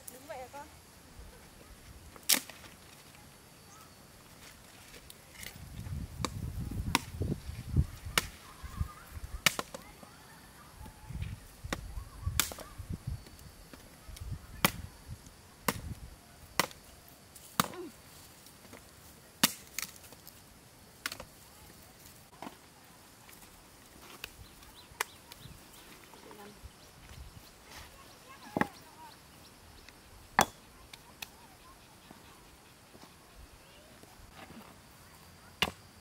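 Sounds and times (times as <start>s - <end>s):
machete chopping wood: 9.4s - 9.8s, 15.7s - 15.9s, 16.6s - 16.8s, 17.6s - 17.9s, 19.4s - 19.9s, 30.4s - 30.6s, 35.6s - 35.8s.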